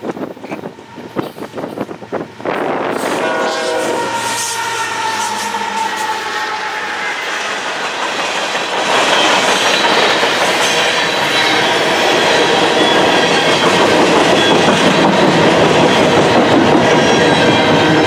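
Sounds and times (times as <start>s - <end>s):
freight train wheels clattering on rails: 0.0s - 18.0s.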